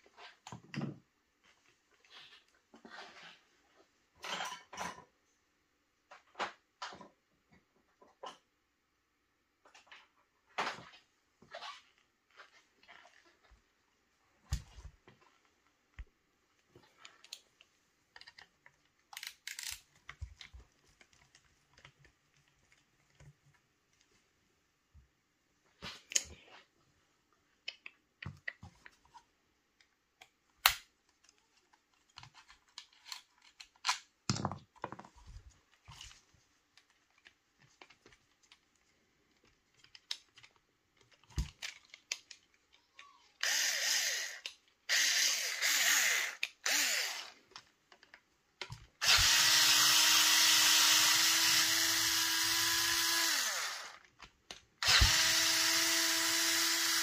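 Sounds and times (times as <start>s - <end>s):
electric screwdriver motor: 43.4s - 47.4s, 49.0s - 54.0s, 54.8s - 57.0s.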